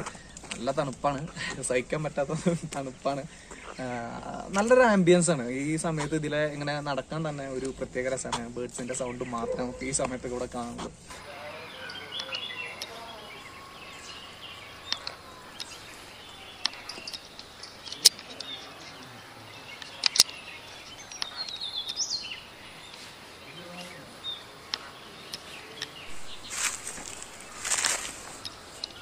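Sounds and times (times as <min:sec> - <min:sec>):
birds chirping and calling: 0:00.0 - 0:29.0
sharp clicks: 0:10.8 - 0:19.0, 0:19.7 - 0:22.2.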